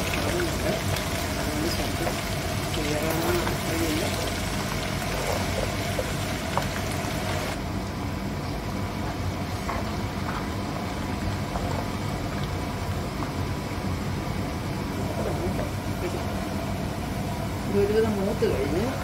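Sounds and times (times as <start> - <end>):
low steady hum: 0.0 - 19.0
oil sizzling and bubbling: 0.0 - 19.0
wooden spoon stirring: 0.1 - 7.5.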